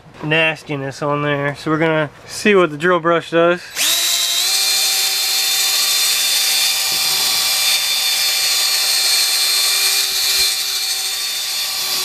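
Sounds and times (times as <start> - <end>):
cordless drill motor whine: 3.7 - 12.0.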